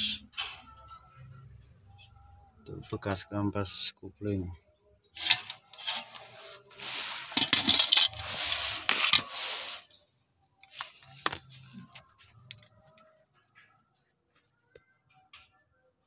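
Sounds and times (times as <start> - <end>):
metal disc scraping on concrete: 5.1 - 10.0.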